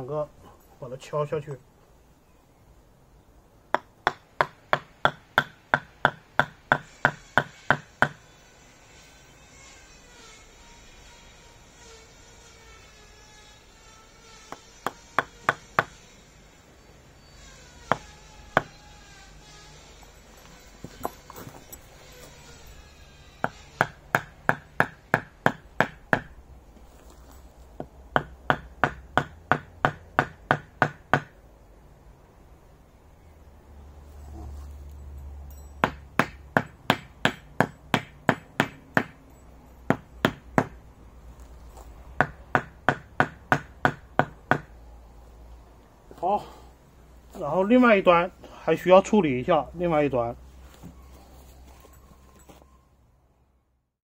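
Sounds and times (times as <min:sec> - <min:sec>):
wooden mallet knocking wooden stake: 0:03.7 - 0:08.2, 0:23.4 - 0:26.3, 0:27.8 - 0:31.4, 0:35.8 - 0:39.2, 0:39.9 - 0:40.8, 0:42.2 - 0:44.7.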